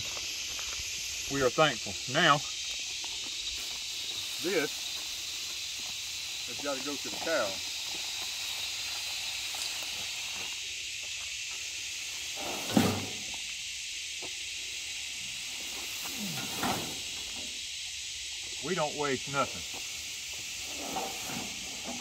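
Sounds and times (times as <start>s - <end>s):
high-pitched insect chorus: 0.0s - 22.0s
vines thumping into cargo bed: 12.4s - 13.3s
leafy vines rustling: 15.1s - 18.7s.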